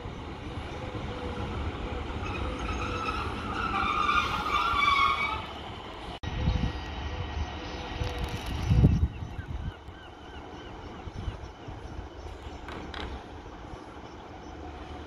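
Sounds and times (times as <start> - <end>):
diesel train engine rumbling: 0.0 - 15.0
train brakes squealing: 2.1 - 5.6.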